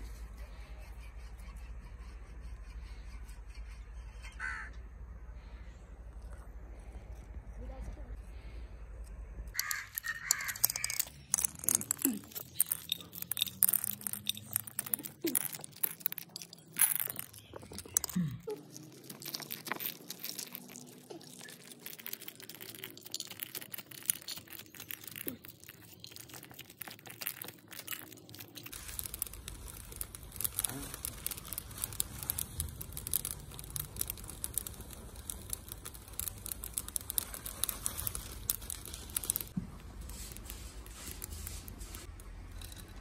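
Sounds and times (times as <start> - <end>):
kernels falling into clay bowl: 9.5 - 43.0
maize cobs crackling: 9.5 - 43.0.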